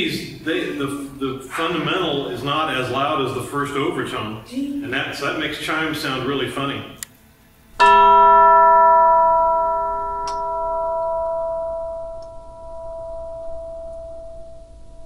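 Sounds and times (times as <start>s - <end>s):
tubular bell ringing: 7.8s - 15.0s.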